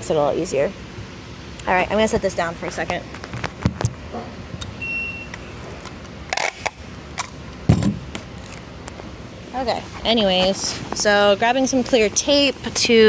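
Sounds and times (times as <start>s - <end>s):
short high beep: 4.8s - 5.5s
tape pulled from dispenser: 5.3s - 7.4s
handling knocks and rustles: 7.6s - 9.1s
thump: 7.7s - 8.0s.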